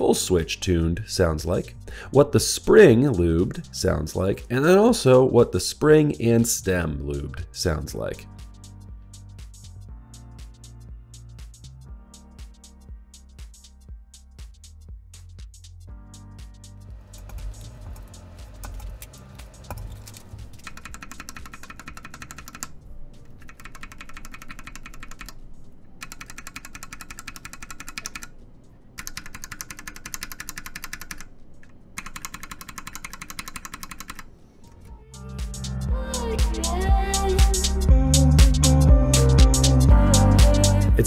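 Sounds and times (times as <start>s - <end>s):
mechanical keyboard switches clacking: 17.3s - 22.7s, 23.4s - 25.4s, 26.0s - 28.3s, 29.0s - 34.3s.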